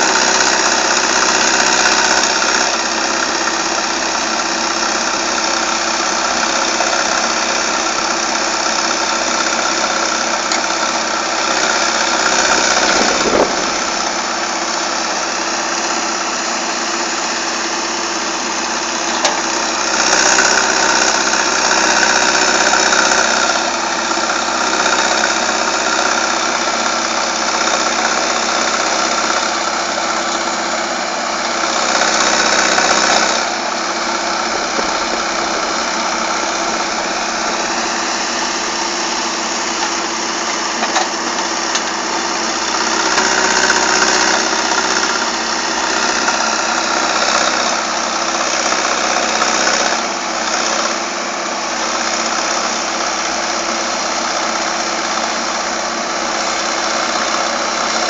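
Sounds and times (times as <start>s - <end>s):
excavator diesel engine running: 0.0s - 58.0s
short thump: 12.8s - 14.1s.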